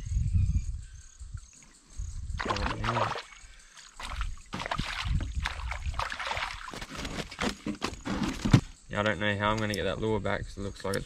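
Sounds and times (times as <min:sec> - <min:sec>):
fish splashing at water surface: 0:02.4 - 0:06.9.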